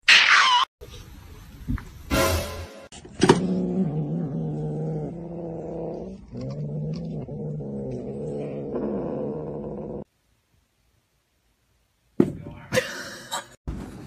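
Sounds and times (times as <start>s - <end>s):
cat growling: 3.4s - 10.1s.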